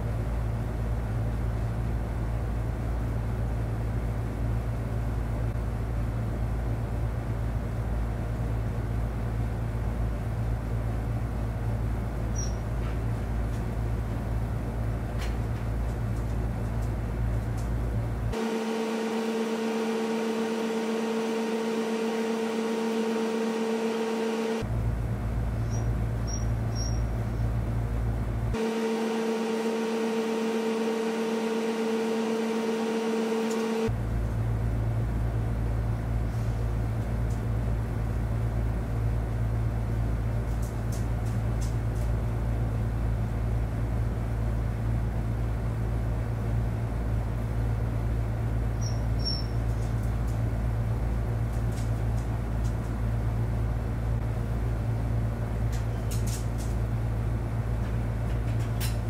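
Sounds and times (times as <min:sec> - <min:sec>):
machine hum with deep rumble: 0:00.0 - 0:59.0
higher two-tone hum: 0:08.9 - 0:40.3.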